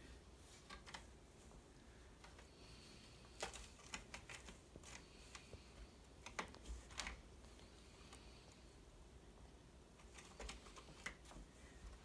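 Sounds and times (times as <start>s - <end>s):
cat claws scratching carpet: 2.2s - 8.6s, 9.9s - 12.0s.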